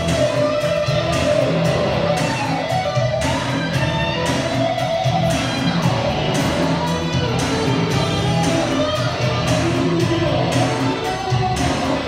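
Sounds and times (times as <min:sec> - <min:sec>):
steady low bass line: 0:00.0 - 0:12.0
strummed electric guitar: 0:00.0 - 0:12.0.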